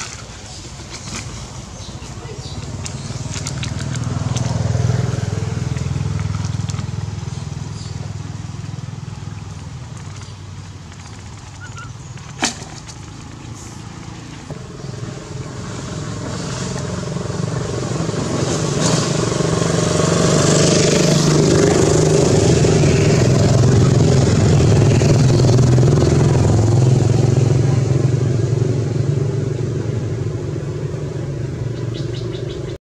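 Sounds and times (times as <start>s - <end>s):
motorcycle engine running: 1.8s - 12.4s, 14.5s - 32.7s.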